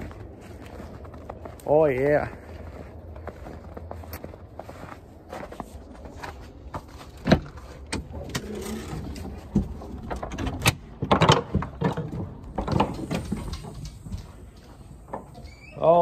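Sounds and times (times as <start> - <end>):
footsteps: 0.0 - 16.0
door latch clicks and rattles: 10.1 - 13.2.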